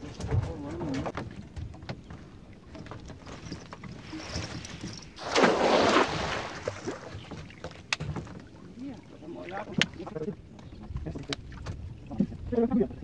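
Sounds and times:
water sloshing around boat: 0.0 - 13.0
splashing rush of water: 4.2 - 7.4.

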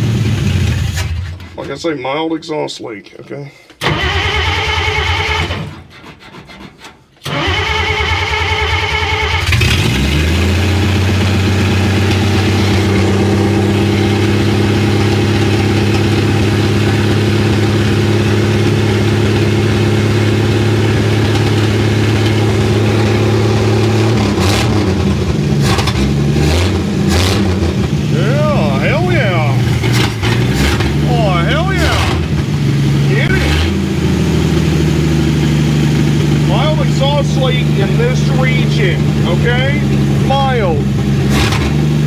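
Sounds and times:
engine cranking: 0.0 - 1.7, 3.8 - 18.0, 18.6 - 34.2
old engine stumbling and running: 3.8 - 42.0.

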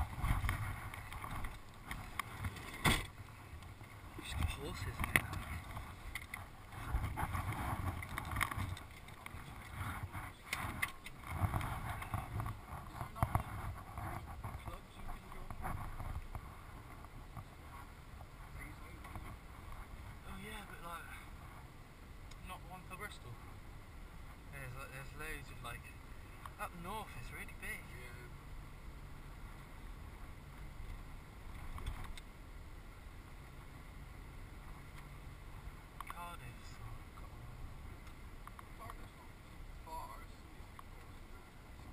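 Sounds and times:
car road rumble: 0.0 - 41.9
light clicks and rattles: 0.2 - 16.4.

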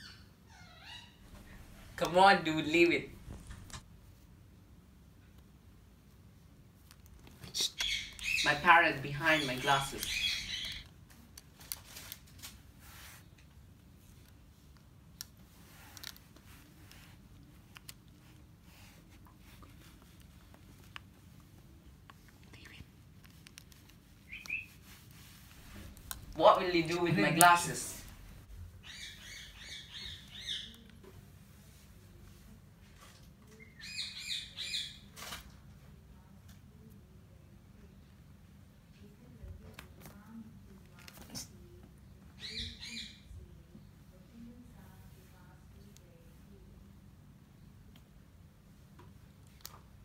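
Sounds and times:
parakeet chirping: 7.6 - 10.8, 24.3 - 24.8, 25.6 - 30.8.

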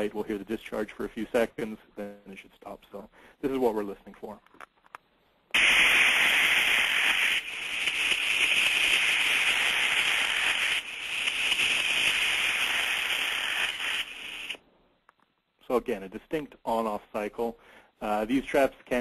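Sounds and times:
steam trap rushing hiss: 5.6 - 14.6.

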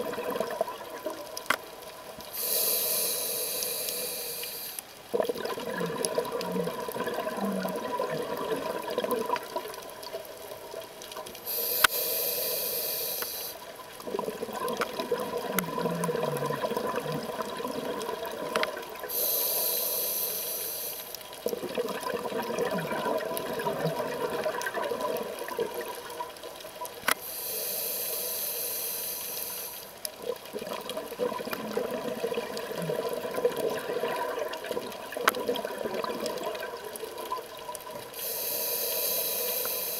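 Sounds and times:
regulator inhalation hiss: 2.2 - 4.9, 11.4 - 13.7, 19.1 - 21.2, 27.1 - 30.0, 38.1 - 39.9.

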